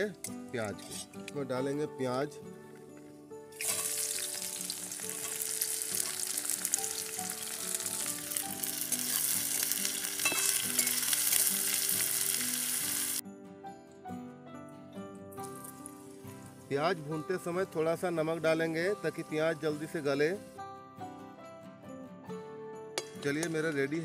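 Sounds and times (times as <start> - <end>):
metal spatula stirring: 0.6 - 1.2, 8.9 - 11.5
onions sizzling in hot oil: 3.6 - 13.2, 15.4 - 16.7.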